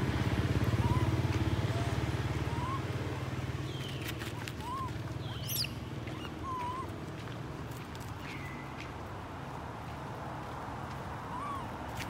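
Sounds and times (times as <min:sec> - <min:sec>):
baby monkey crying: 0:00.7 - 0:03.0, 0:04.6 - 0:06.9.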